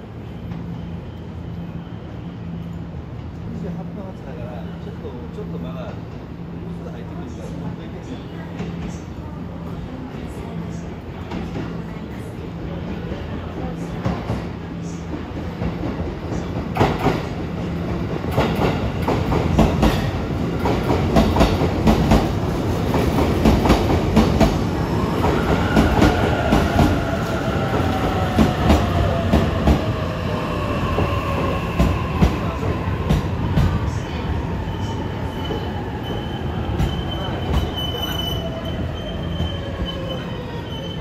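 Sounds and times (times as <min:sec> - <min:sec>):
high brake squeal: 0:34.8 - 0:41.0.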